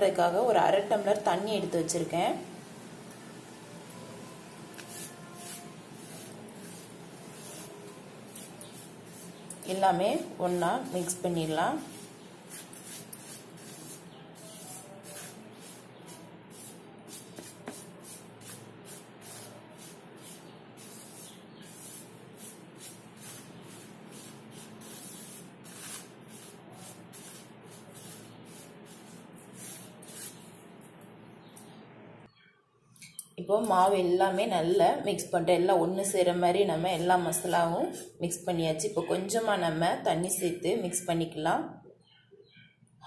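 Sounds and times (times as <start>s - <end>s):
fingers rubbing powder on a plate: 4.8s - 30.6s, 36.9s - 38.2s.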